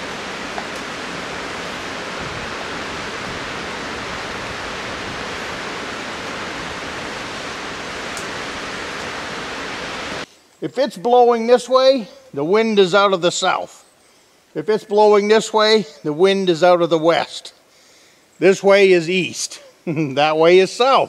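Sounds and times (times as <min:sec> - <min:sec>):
wind on microphone: 0:00.0 - 0:10.2
wind rushing through trees: 0:00.0 - 0:10.3.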